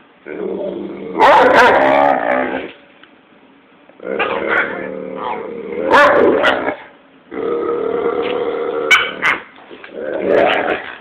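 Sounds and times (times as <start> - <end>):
dog barks: 1.2 - 1.9, 5.9 - 6.7, 8.9 - 9.5
dogs growling: 4.0 - 11.0.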